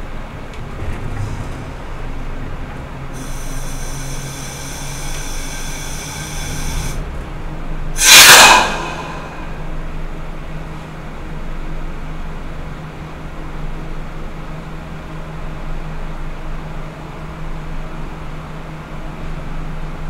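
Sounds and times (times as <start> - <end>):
diesel railcar engine drone: 0.0 - 20.0
high-pitched whine: 3.2 - 7.0, 8.0 - 10.0
loud short air hiss: 8.0 - 9.8.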